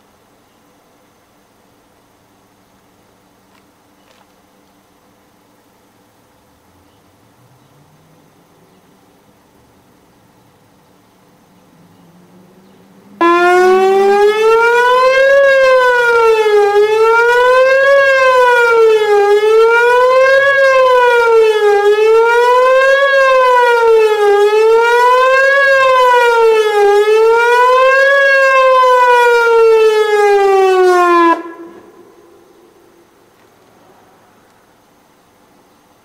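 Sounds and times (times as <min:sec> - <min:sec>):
warning siren rising and falling: 0:12.1 - 0:33.2.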